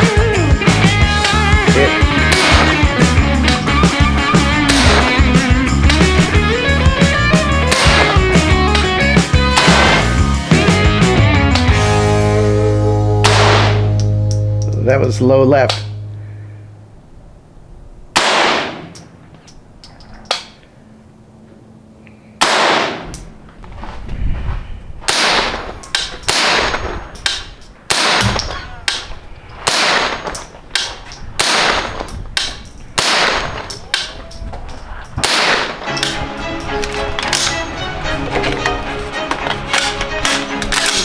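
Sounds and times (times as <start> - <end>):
rifle shots: 2.2 - 2.9, 4.6 - 5.2, 7.7 - 8.2, 9.6 - 10.2, 13.2 - 13.9, 18.2 - 19.0, 22.4 - 23.1, 25.1 - 27.0, 27.9 - 28.6, 29.6 - 30.4, 31.4 - 32.1, 33.0 - 34.2, 35.2 - 36.2.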